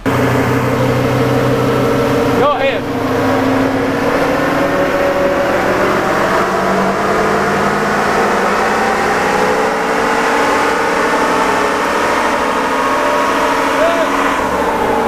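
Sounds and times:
diesel engine pulling hard under load: 0:00.0 - 0:15.0.

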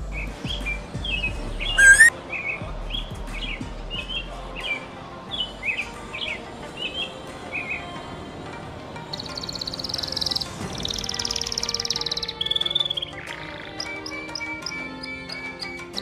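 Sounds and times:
robin singing: 0:00.0 - 0:08.1, 0:09.1 - 0:16.0.

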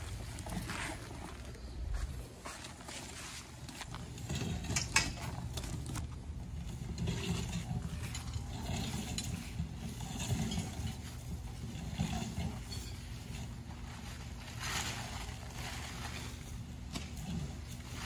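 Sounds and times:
metal stakes clinking together: 0:04.3 - 0:06.0.

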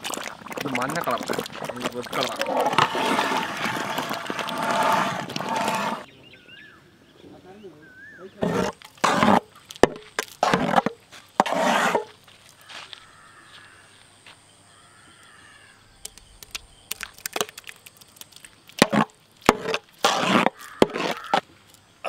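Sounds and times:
metal ladle scraping a pot: 0:00.1 - 0:06.1, 0:08.4 - 0:09.6, 0:10.4 - 0:12.1, 0:18.8 - 0:21.4.

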